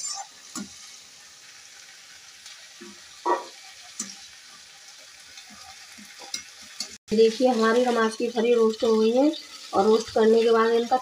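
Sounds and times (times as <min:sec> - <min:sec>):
spatula scraping a metal pan: 0:00.0 - 0:00.7
pods sizzling in hot oil: 0:00.0 - 0:11.0.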